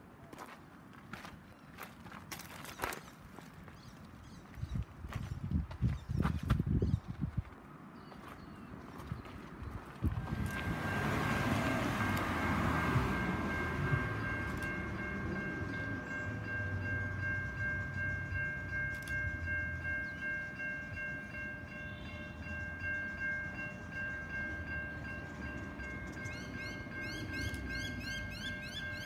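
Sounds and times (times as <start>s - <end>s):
level crossing bells ringing: 10.1s - 29.0s.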